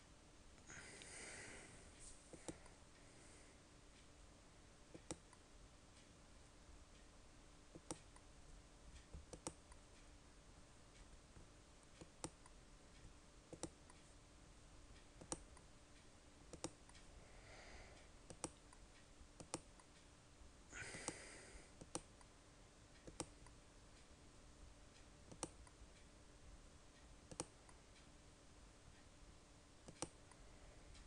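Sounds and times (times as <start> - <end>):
faint steady hum: 0.0 - 31.0
computer mouse clicks: 4.9 - 5.4, 7.7 - 8.3, 9.0 - 10.1, 11.4 - 12.6, 13.5 - 14.0, 15.2 - 15.7, 16.5 - 17.0, 18.3 - 18.8, 19.4 - 20.0, 21.8 - 22.3, 23.0 - 23.6, 25.3 - 25.8, 27.3 - 27.7, 29.8 - 30.4.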